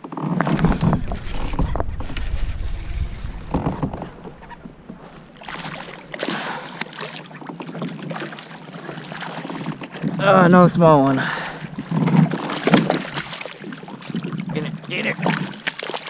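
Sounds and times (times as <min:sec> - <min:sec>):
water lapping against kayak hull: 0:00.1 - 0:16.0
low rumble: 0:00.4 - 0:06.6.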